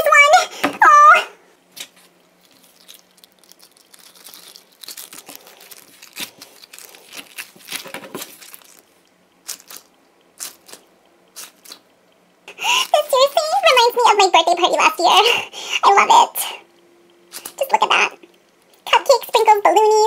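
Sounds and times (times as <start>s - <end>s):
squishy toy crackly rustle: 1.7s - 11.9s, 12.8s - 13.3s, 17.3s - 18.0s.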